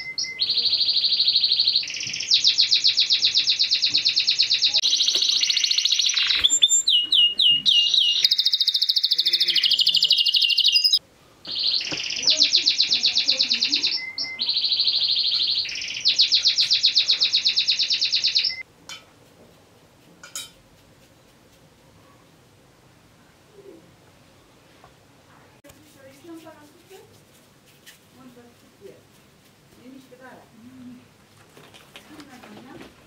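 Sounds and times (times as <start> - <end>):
canary singing trills: 0.0 - 18.6.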